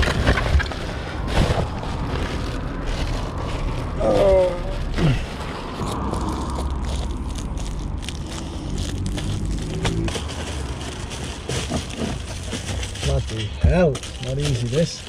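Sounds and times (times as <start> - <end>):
steady low rumble: 0.0 - 12.0
foil insulation crinkling: 0.0 - 15.0.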